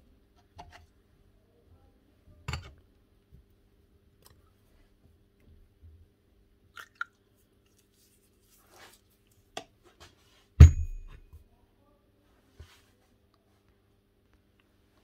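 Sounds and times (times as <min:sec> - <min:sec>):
loud metallic knock: 0:10.6 - 0:11.2.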